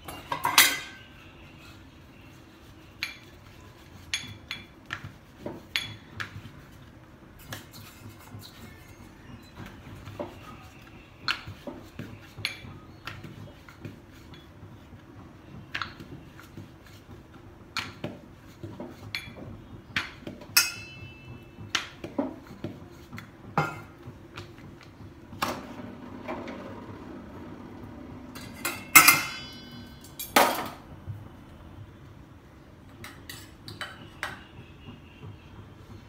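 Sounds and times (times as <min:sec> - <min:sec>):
ringing metallic clink: 0:28.6 - 0:30.4.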